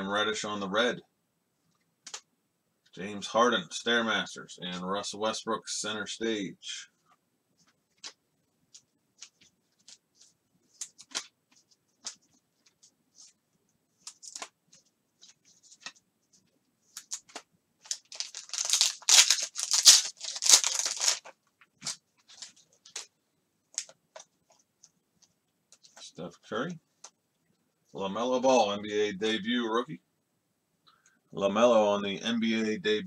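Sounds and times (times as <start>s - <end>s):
cards clicking and rustling: 2.0s - 2.2s, 7.9s - 13.3s, 14.0s - 16.0s, 16.9s - 23.1s, 23.7s - 26.1s
foil pack ripping and crinkling: 17.0s - 23.0s.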